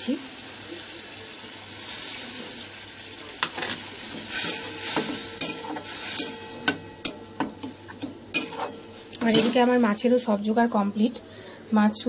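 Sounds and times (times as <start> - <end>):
liquid sizzling in hot oil: 0.0 - 10.6
metal spatula scraping pan: 3.6 - 10.1.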